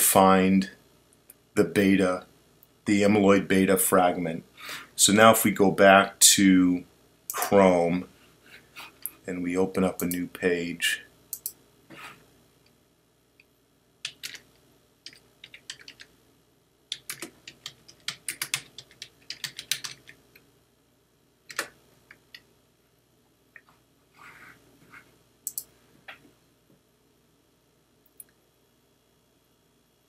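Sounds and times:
keyboard typing: 14.0s - 14.4s, 15.0s - 16.1s, 16.9s - 20.2s, 21.5s - 21.8s, 25.5s - 25.7s.

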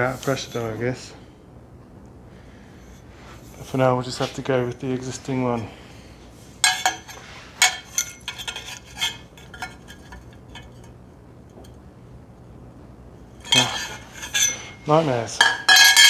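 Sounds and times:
steel tubes clinking: 6.6s - 11.0s, 13.4s - 16.0s.

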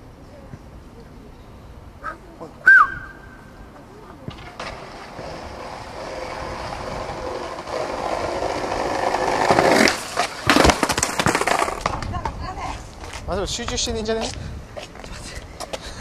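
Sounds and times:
skateboard wheels rolling on concrete: 2.0s - 16.0s
skateboard clattering: 4.2s - 12.5s
skateboard landing slap: 9.5s - 12.1s.

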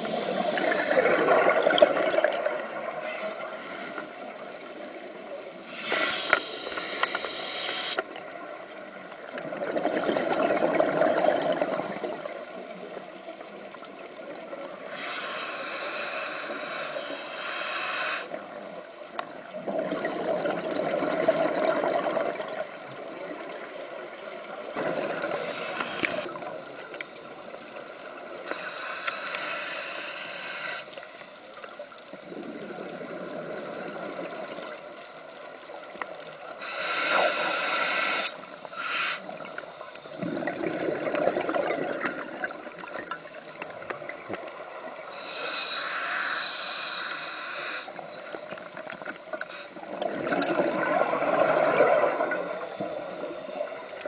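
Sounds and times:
gurgling exhaled bubbles: 0.0s - 2.5s, 9.4s - 12.2s, 19.6s - 22.6s, 32.2s - 34.7s, 40.1s - 43.1s, 49.8s - 53.8s
regulator hissing breaths: 2.5s - 8.6s, 14.5s - 19.0s, 24.9s - 26.4s, 28.5s - 31.7s, 36.5s - 40.2s, 45.0s - 49.9s.

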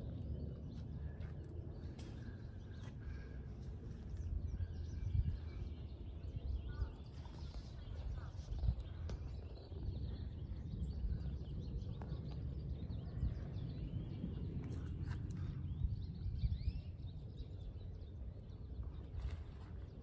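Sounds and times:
songbirds chirping and singing: 0.0s - 20.0s
steady low rumble: 0.0s - 20.0s.

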